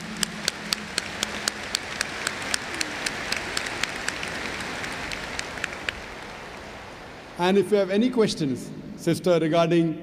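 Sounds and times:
sharp close claps: 0:00.0 - 0:06.8
crowd clapping: 0:00.0 - 0:07.4.

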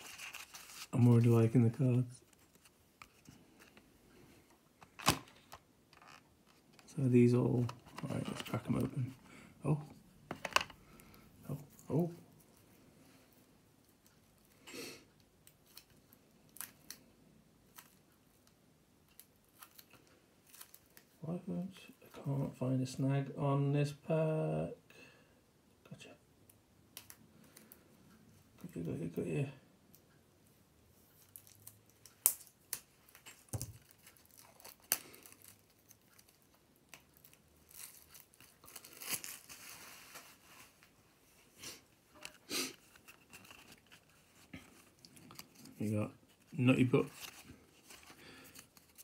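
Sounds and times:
plastic wrap tearing and crinkling: 0:00.0 - 0:01.5, 0:31.2 - 0:40.8
plastic rustle: 0:00.0 - 0:03.8, 0:33.0 - 0:49.0.

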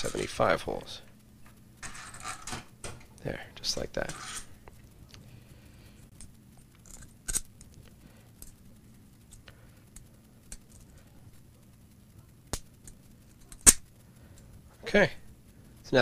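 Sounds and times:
small screws and metal plate clicking: 0:06.1 - 0:08.6.

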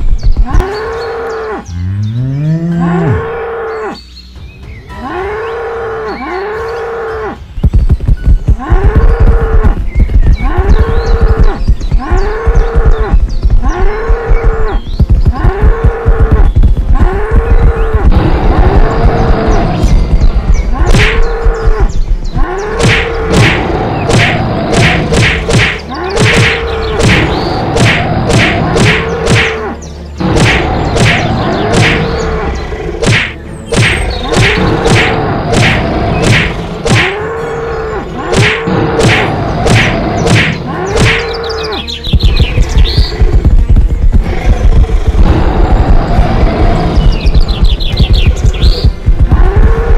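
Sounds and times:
cartoon bulls mooing: 0:00.5 - 0:04.0, 0:08.6 - 0:09.8, 0:10.4 - 0:20.0, 0:49.1 - 0:49.9
hooves thumping: 0:07.5 - 0:32.2, 0:38.3 - 0:49.9
thuds and whacks: 0:20.8 - 0:21.3, 0:22.8 - 0:29.6, 0:30.2 - 0:32.1, 0:33.0 - 0:37.2, 0:38.3 - 0:41.4.

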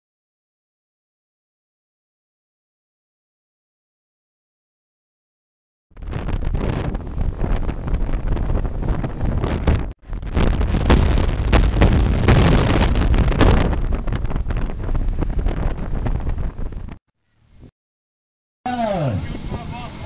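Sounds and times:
wind buffeting microphone: 0:05.9 - 0:17.7, 0:19.1 - 0:20.0
crackles: 0:06.0 - 0:17.0
car travel rumble: 0:06.0 - 0:17.7.

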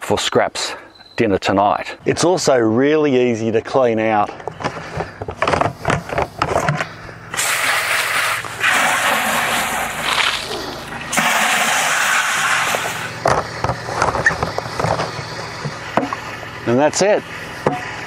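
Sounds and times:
water rushing into bucket: 0:07.4 - 0:13.2.

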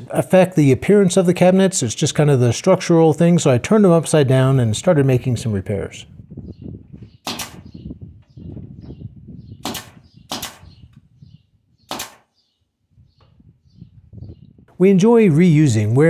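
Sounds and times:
nail gun firing: 0:07.2 - 0:07.8, 0:09.6 - 0:10.9, 0:11.9 - 0:12.4.

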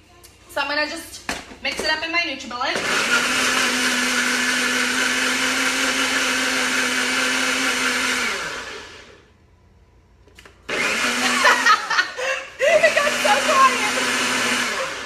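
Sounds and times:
blender motor running: 0:02.7 - 0:09.3, 0:10.7 - 0:15.0.

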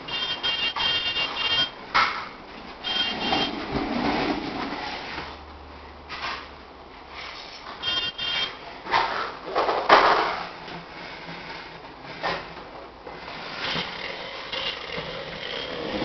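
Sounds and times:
plastic toy rolling on tile floor: 0:02.9 - 0:05.1, 0:09.0 - 0:16.0.

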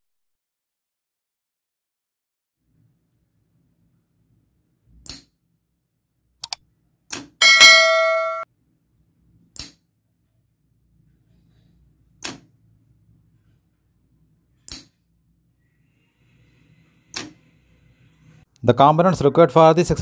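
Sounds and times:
bright bell ding: 0:07.4 - 0:08.5.

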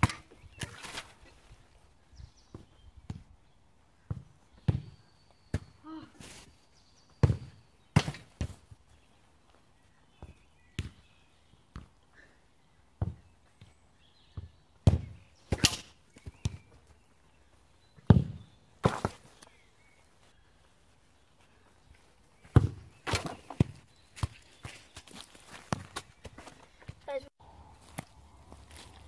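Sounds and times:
football kick thuds: 0:18.1 - 0:19.2, 0:22.5 - 0:24.3.

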